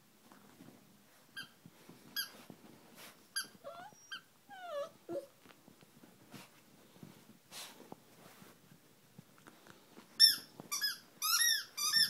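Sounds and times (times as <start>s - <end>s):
puppy whining: 3.4s - 5.5s
squeaky toy squeaking: 10.2s - 12.0s.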